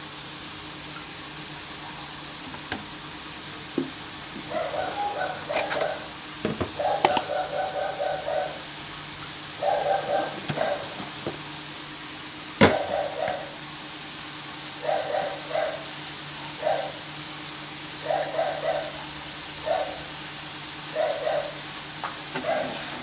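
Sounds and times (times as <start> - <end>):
meat sizzling in a frying pan: 0.0 - 23.0
metal spatula clinking on pan: 5.5 - 5.8.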